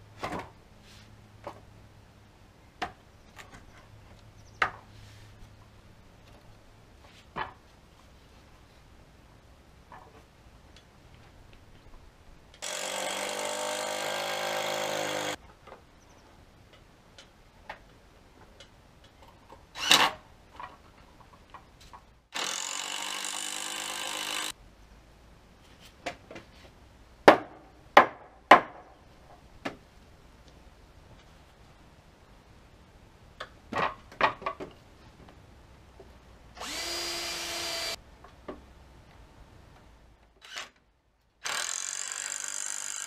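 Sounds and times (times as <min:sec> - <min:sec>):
cordless drill driving screws: 0:12.6 - 0:15.4, 0:22.4 - 0:24.5, 0:36.6 - 0:38.0, 0:40.4 - 0:40.8, 0:41.4 - 0:43.0.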